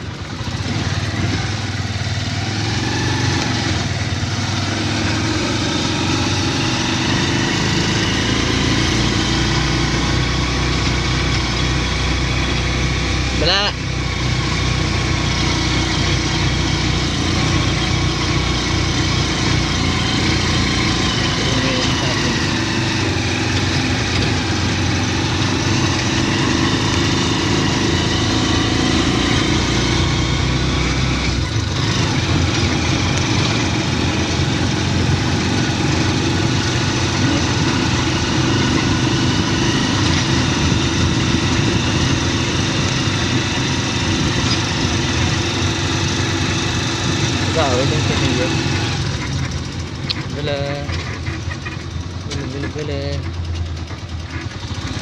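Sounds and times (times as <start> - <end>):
vehicle engine running: 0.0 - 55.0.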